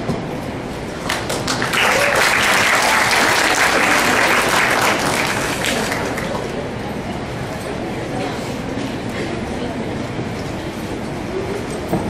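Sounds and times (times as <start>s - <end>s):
audience applauding: 1.0s - 6.6s.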